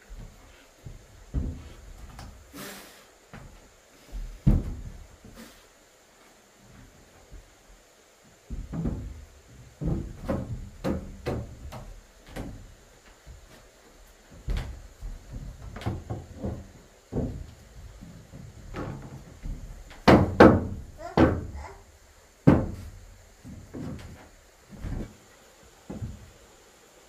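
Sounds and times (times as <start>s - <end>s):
wooden knocks and thuds: 0.1s - 2.4s, 3.3s - 5.4s, 8.4s - 13.6s, 14.3s - 21.7s, 22.4s - 25.2s, 25.8s - 26.3s.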